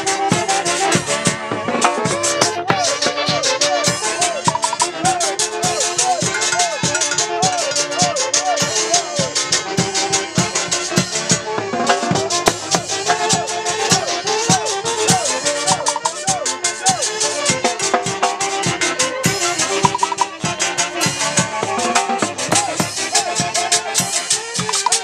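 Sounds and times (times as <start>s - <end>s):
steady percussion beat: 4.3s - 8.2s, 14.5s - 16.6s, 19.6s - 20.6s, 24.0s - 25.0s
dance orchestra melody: 4.5s - 5.0s, 15.7s - 16.2s, 19.8s - 20.3s, 24.6s - 25.0s.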